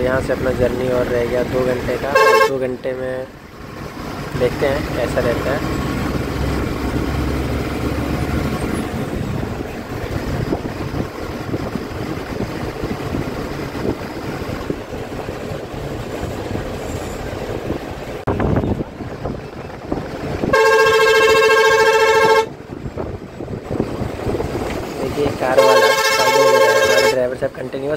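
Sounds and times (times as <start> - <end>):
bus engine drone: 0.0 - 27.9
road rumble with jolts and rattles: 0.0 - 27.9.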